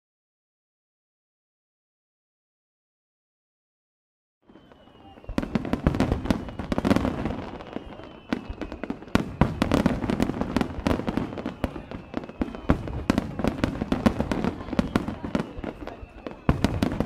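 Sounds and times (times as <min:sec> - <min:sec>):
fireworks bangs and crackles: 0:04.4 - 0:17.0.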